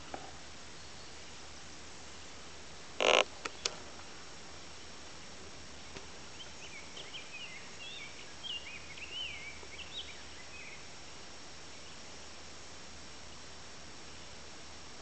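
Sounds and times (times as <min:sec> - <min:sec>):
songbird singing: 0:00.0 - 0:02.3, 0:03.0 - 0:04.0, 0:04.6 - 0:14.4
steady outdoor hiss: 0:00.0 - 0:15.0.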